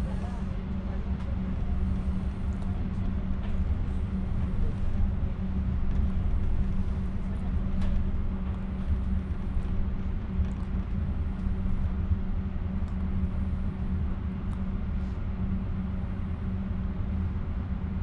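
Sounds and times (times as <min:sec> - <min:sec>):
constant hum: 0:00.0 - 0:18.0
train rumbling from inside: 0:00.0 - 0:18.0.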